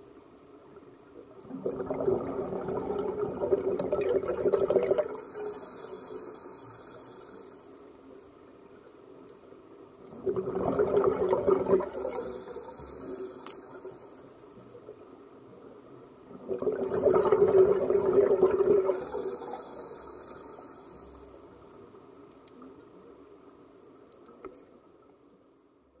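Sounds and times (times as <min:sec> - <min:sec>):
exhaled air bubbling: 0:01.2 - 0:07.6, 0:10.0 - 0:14.0, 0:16.2 - 0:21.2
regulator inhalation hiss: 0:05.1 - 0:07.8, 0:11.9 - 0:14.4, 0:18.9 - 0:21.3.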